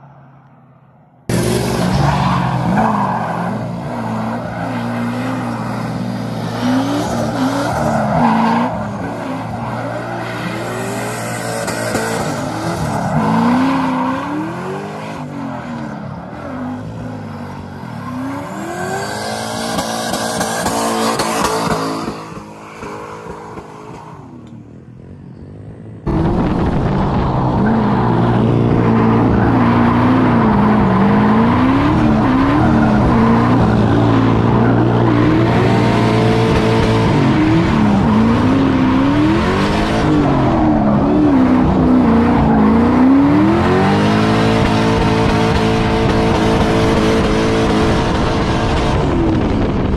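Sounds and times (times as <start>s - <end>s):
truck engine revving: 1.3s - 24.0s, 25.0s - 49.9s
tires skidding: 1.3s - 24.4s, 26.1s - 49.9s.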